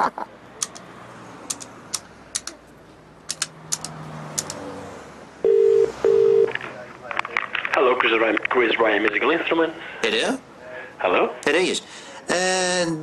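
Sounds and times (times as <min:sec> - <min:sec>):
sharp clicks: 0:00.6 - 0:00.9, 0:01.5 - 0:02.6, 0:03.3 - 0:04.6
telephone ringing tone: 0:05.4 - 0:06.6.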